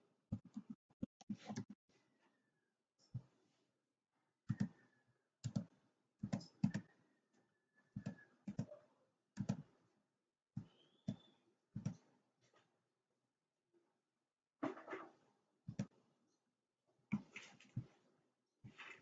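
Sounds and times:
computer mouse clicks: 5.4s - 6.9s, 9.4s - 9.6s.

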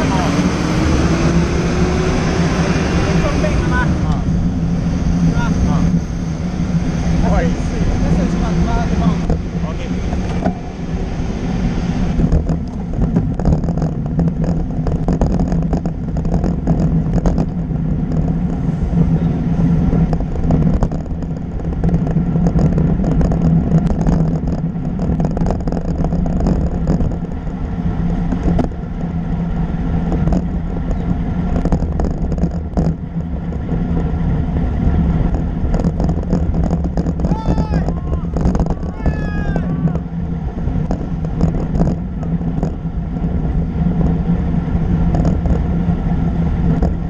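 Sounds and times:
tyres rumbling on tarmac: 0.0s - 47.0s
wind on microphone: 0.0s - 47.0s
bicycle clicks and rattles: 12.2s - 19.1s, 20.0s - 47.0s.

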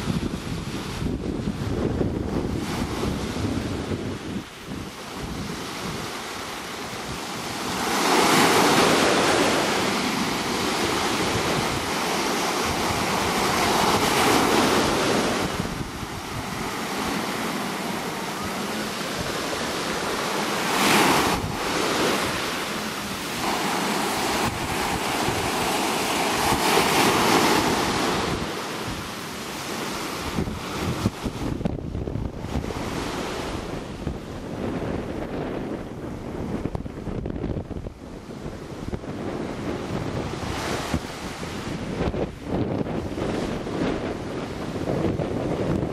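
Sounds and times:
waves washing up a pebble beach: 0.0s - 31.6s
wind buffeting the microphone: 0.0s - 45.9s.

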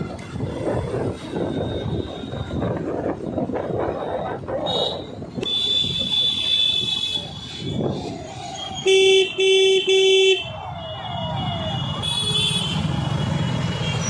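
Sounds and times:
street traffic noise: 0.0s - 14.0s
vehicle horn honking: 8.9s - 10.5s.

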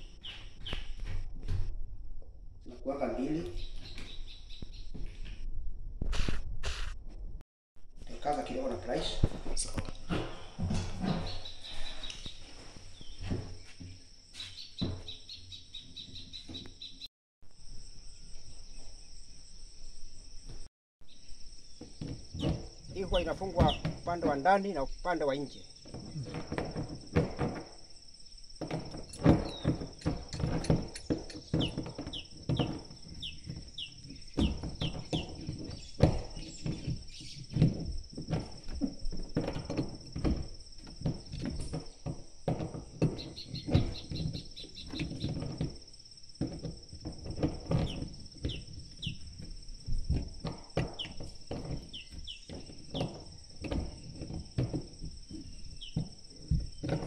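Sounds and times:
crickets trilling: 8.3s - 57.0s
knocks and handling clatter: 21.8s - 57.0s.

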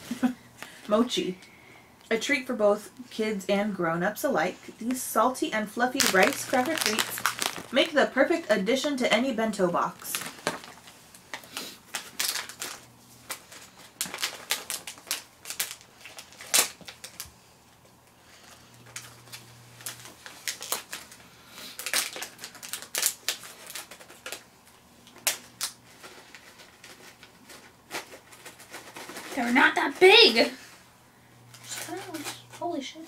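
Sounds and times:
plastic wrapper crinkling: 5.6s - 17.3s, 18.5s - 30.2s.

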